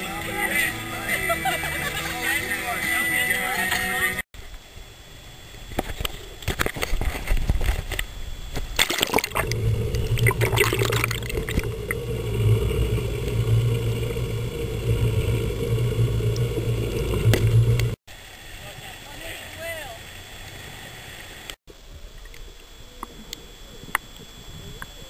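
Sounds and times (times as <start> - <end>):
boat engine hum underwater: 4.4 - 25.0
water splashing and bubbling: 8.7 - 18.3.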